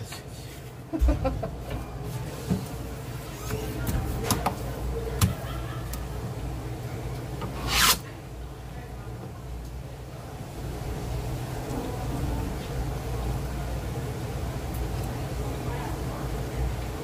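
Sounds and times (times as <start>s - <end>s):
knife scraping fish: 7.4s - 8.0s.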